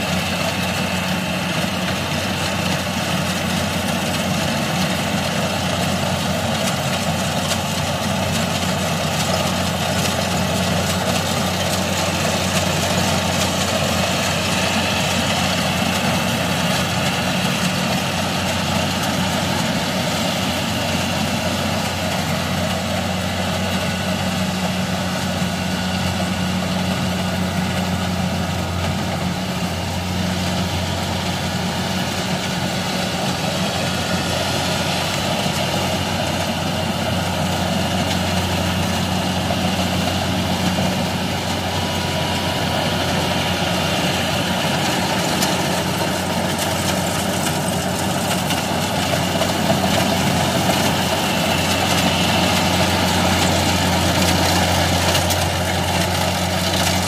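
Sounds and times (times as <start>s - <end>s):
combine harvester running: 0.0s - 57.0s.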